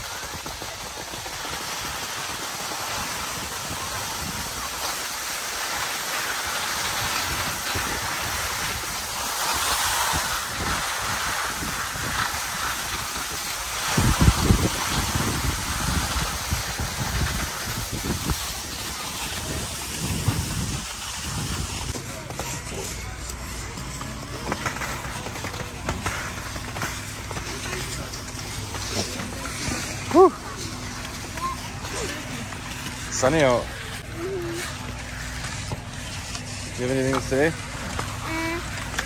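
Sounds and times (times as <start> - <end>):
skis scraping over snow: 0.0 - 39.0
wind buffeting microphone: 10.1 - 22.0.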